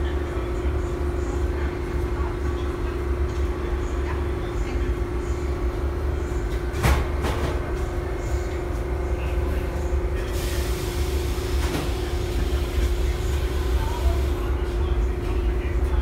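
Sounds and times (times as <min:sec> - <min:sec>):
subway train rumbling: 0:00.0 - 0:16.0.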